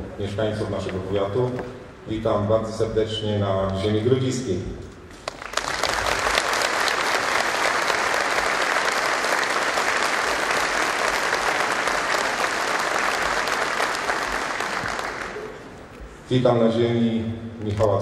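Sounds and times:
audience applauding: 0:05.1 - 0:15.9.

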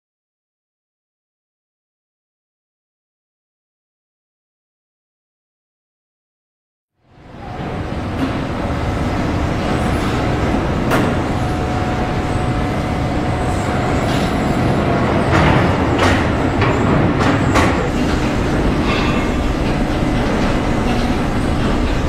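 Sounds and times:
crane mechanical drone: 0:07.0 - 0:22.0
thin steady whine: 0:07.0 - 0:22.0
sharp metallic clanks: 0:13.6 - 0:22.0.

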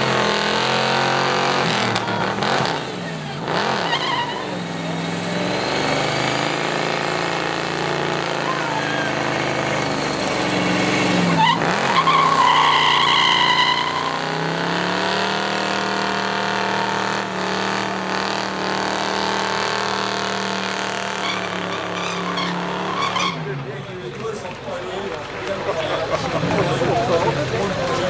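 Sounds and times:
car engine at high revs: 0:00.0 - 0:23.6
tyres squealing: 0:01.6 - 0:06.6, 0:08.1 - 0:14.8, 0:21.1 - 0:23.6.

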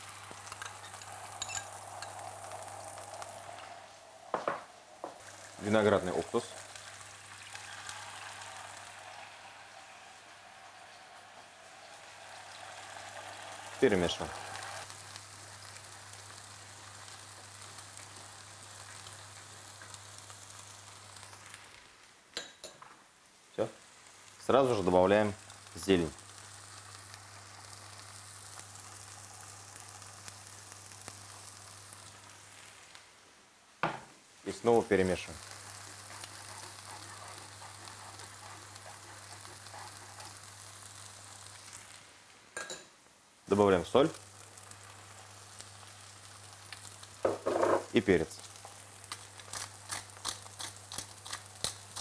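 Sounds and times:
sauce sizzling and bubbling: 0:00.0 - 0:52.0
spoon stirring in saucepan: 0:35.4 - 0:40.9.

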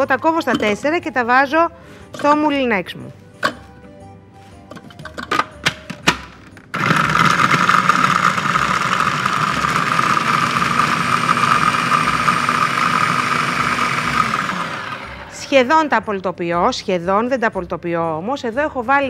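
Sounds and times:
food processor chopping onions: 0:04.7 - 0:15.6.

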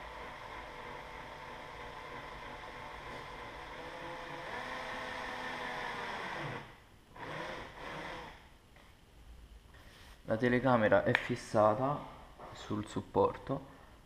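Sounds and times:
cordless drill running: 0:00.0 - 0:08.4.

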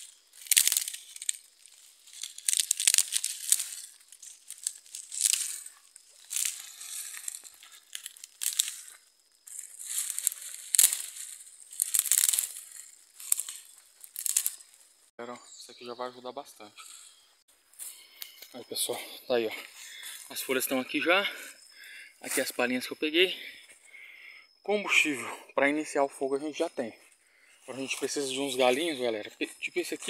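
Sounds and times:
dry palm fronds rustling: 0:00.0 - 0:15.1.

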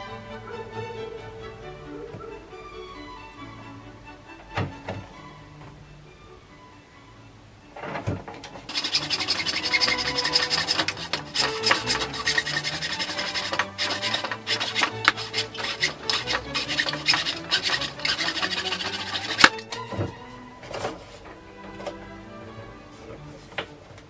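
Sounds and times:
hacksaw sawing plastic pipe: 0:08.7 - 0:19.8.

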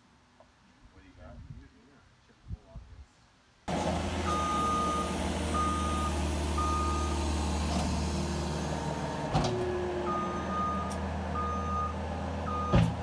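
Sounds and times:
diesel loader engine drone: 0:03.7 - 0:13.0
reversing alarm beeping: 0:04.2 - 0:07.2, 0:10.0 - 0:12.9.

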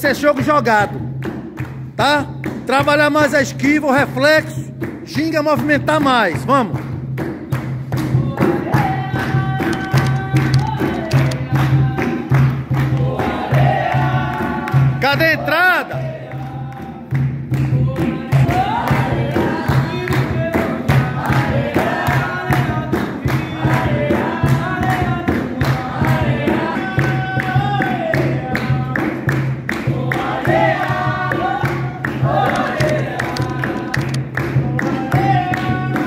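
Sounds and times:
hand drum beat: 0:00.0 - 0:36.0
hand-clapping: 0:00.0 - 0:36.0
group singing together: 0:08.0 - 0:36.0.

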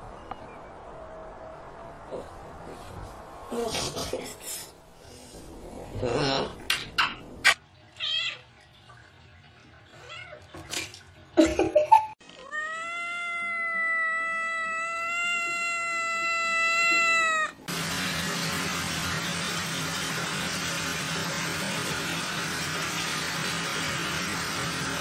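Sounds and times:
cat meowing: 0:12.3 - 0:17.7.

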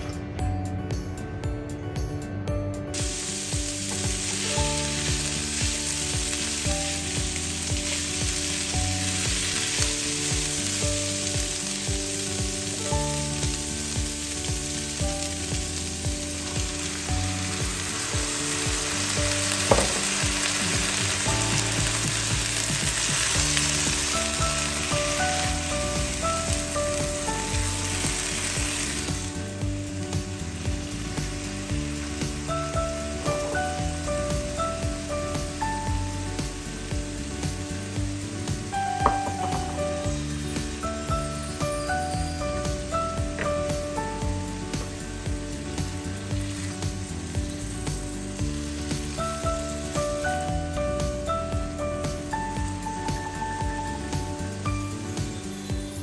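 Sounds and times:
vegetables sizzling in a wok: 0:02.9 - 0:56.0
sharp knock: 0:19.7 - 0:20.3, 0:39.0 - 0:39.8.

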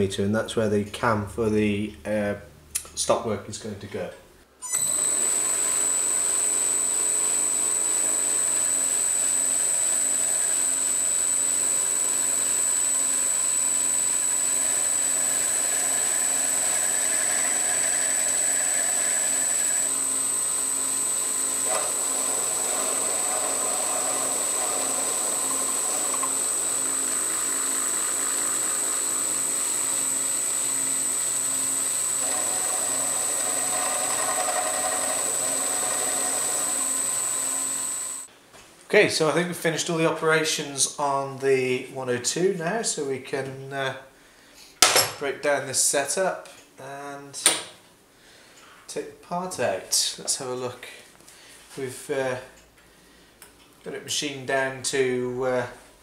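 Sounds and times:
lathe running with high whine: 0:04.7 - 0:38.3.

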